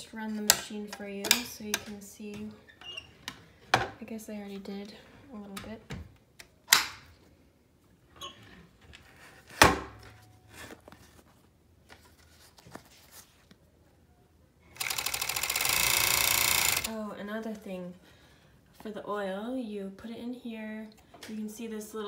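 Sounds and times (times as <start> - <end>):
sewing machine rattling: 14.8 - 16.9.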